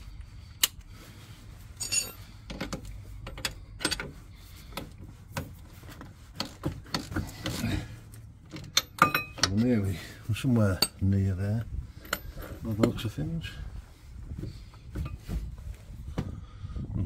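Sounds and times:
spanner clicking on bolt: 1.8 - 4.1, 8.5 - 9.6.

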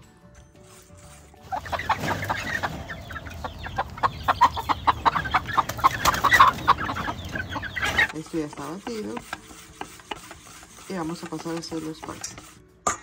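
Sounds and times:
whisk beating batter in bowl: 8.1 - 12.6.

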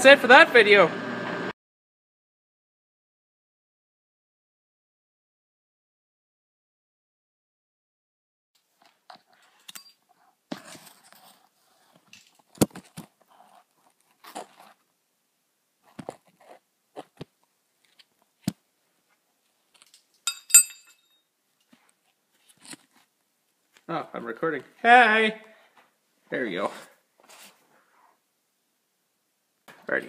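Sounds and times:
ringing metallic clink: 20.2 - 21.2.

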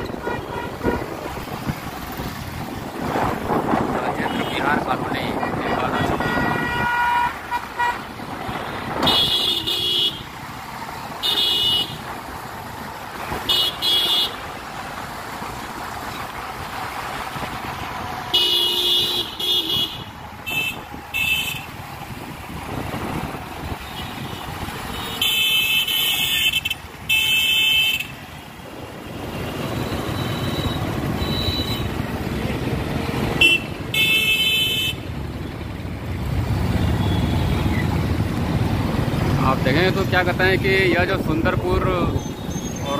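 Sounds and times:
vehicle horns honking: 0.0 - 1.4, 4.2 - 10.4, 11.2 - 12.0, 13.4 - 14.4, 18.3 - 21.8, 23.8 - 28.4, 29.4 - 32.0, 33.3 - 35.1, 36.7 - 37.8
engine and road noise: 0.0 - 42.9.

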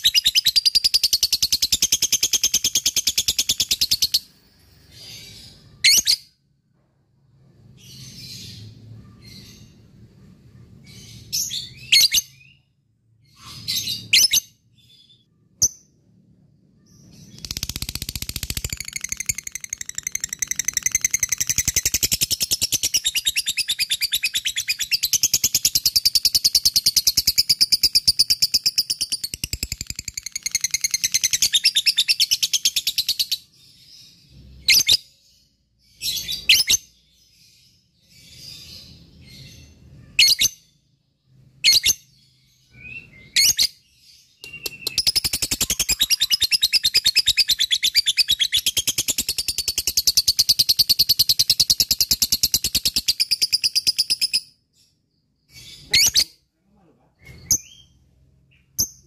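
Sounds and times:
sharp bird chirps: 0.0 - 6.4, 16.7 - 40.8, 41.6 - 56.4
bird chattering trill: 17.3 - 28.0, 44.4 - 54.2.

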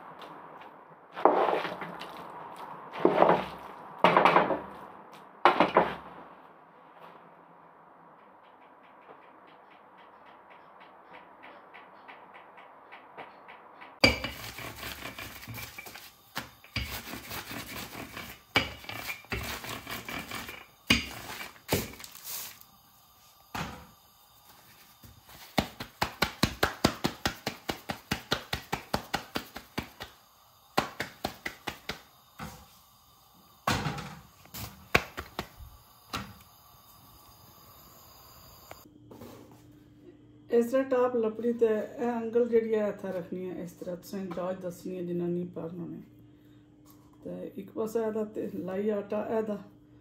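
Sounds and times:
kitchen utensils clattering: 14.0 - 22.1.

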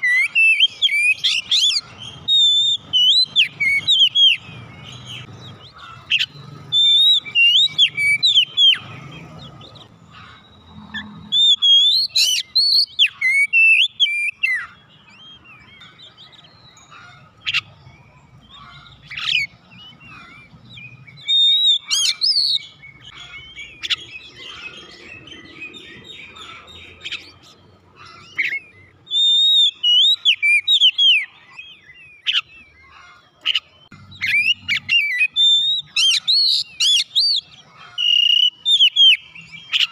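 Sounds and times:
bird singing whistled phrases: 0.0 - 5.4, 6.1 - 8.9, 11.3 - 16.7, 20.8 - 23.0, 28.3 - 32.8, 34.2 - 39.9.

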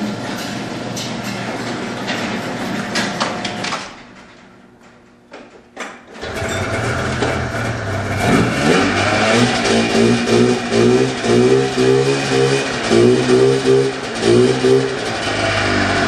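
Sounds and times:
garage door rolling open: 0.0 - 16.0
snowmobile engine revving: 6.7 - 16.0.

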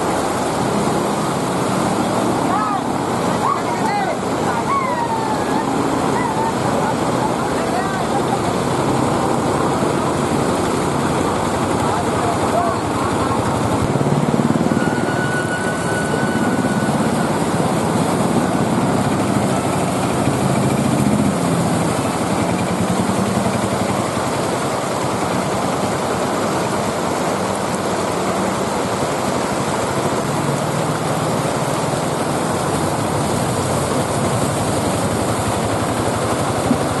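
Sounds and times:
auto-rickshaw engines running: 0.0 - 37.0
water rushing and splashing: 0.0 - 37.0.

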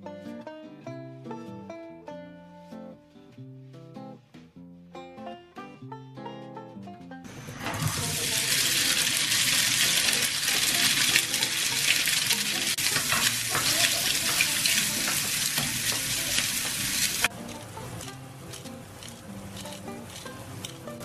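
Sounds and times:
food sizzling in butter: 7.3 - 21.0
spatula scraping frying pan: 7.4 - 21.0.

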